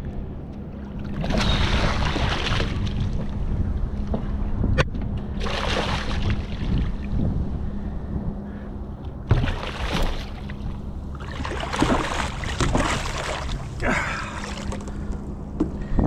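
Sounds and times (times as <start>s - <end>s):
boat engine humming: 0.0s - 16.0s
fish splashing at water surface: 11.2s - 13.7s.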